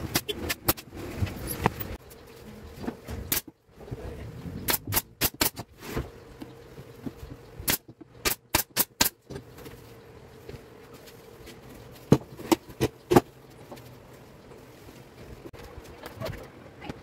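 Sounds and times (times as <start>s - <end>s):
pneumatic nailer firing: 3.3s - 3.5s, 4.7s - 5.7s, 7.6s - 9.2s.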